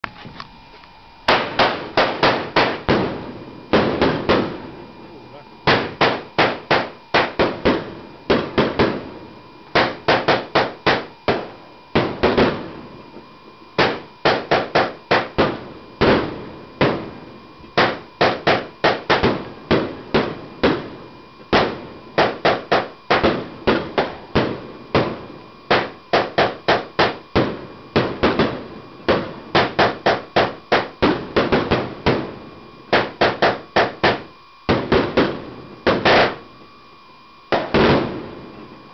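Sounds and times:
firework cake bangs: 1.3s - 4.9s, 5.6s - 13.2s, 13.8s - 36.5s, 37.5s - 38.7s.

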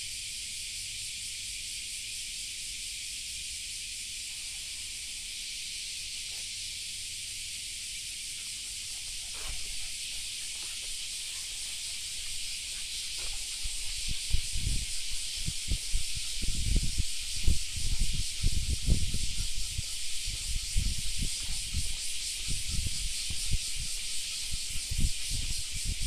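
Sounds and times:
steady high-pitched hiss: 0.0s - 26.0s
faint scuffs and rustles: 9.0s - 14.8s.

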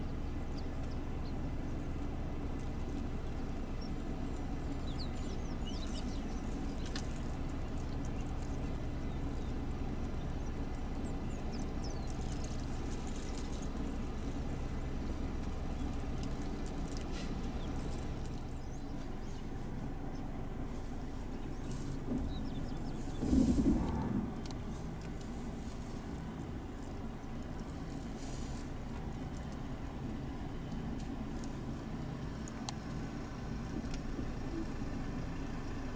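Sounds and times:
birds chirping: 0.0s - 33.2s
vehicle engine idling: 0.0s - 35.9s
leaves rustling: 12.1s - 33.2s
elephant chewing: 20.4s - 30.0s.

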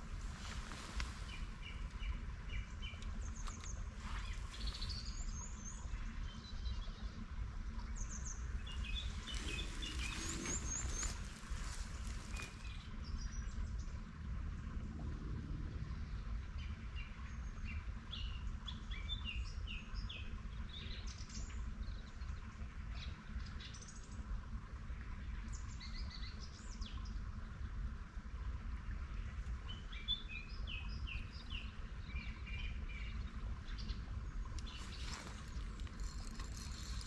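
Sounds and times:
songbird chirping: 0.0s - 14.0s, 29.3s - 37.0s
steady low rumble: 0.0s - 18.9s, 20.0s - 37.0s.

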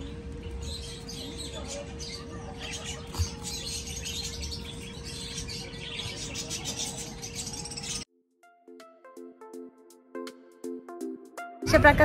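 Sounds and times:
small birds chirping: 0.0s - 8.1s
steady low hum: 0.0s - 8.1s.

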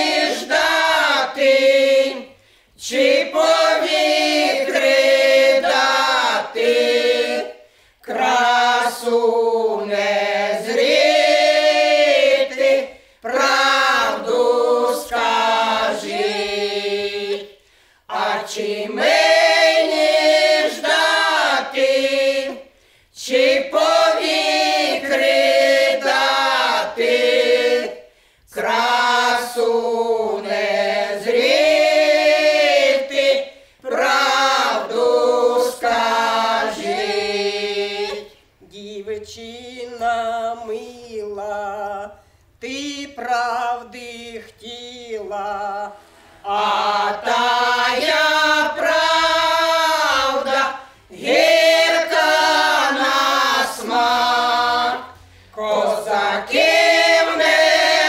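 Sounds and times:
women singing a cappella: 0.0s - 58.0s.

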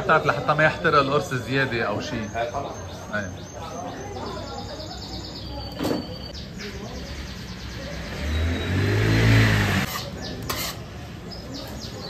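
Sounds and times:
vehicle passing: 7.1s - 10.0s.

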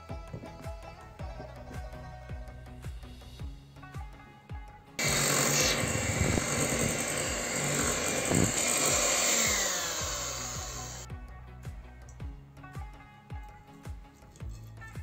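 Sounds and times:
background music: 0.0s - 15.0s
electric hand mixer running: 5.0s - 11.1s.

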